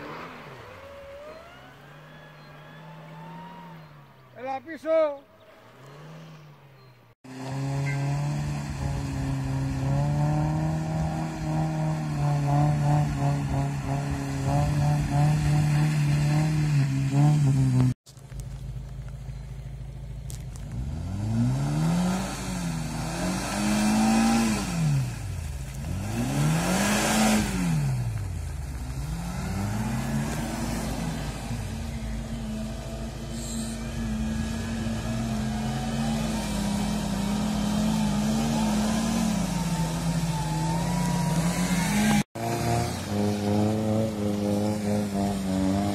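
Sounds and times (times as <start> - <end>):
car engine revving: 0.0 - 4.4, 5.4 - 18.0, 19.2 - 45.9
wheels churning mud: 5.4 - 45.9.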